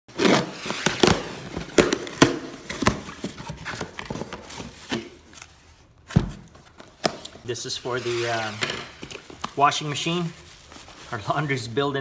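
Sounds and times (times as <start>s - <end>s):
scissors cutting cardboard box: 0.1s - 5.0s
cardboard flaps rustling: 0.2s - 11.6s.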